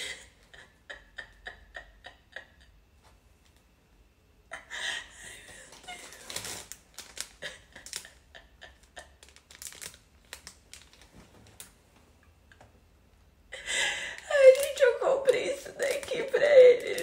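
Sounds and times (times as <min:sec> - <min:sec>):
plastic packaging crinkling: 0:05.5 - 0:08.2, 0:09.0 - 0:11.7, 0:14.2 - 0:17.0.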